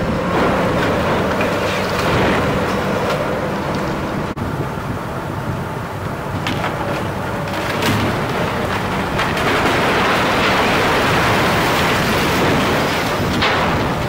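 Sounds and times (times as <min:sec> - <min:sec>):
building collapsing crash: 0:00.1 - 0:03.3, 0:06.4 - 0:14.0.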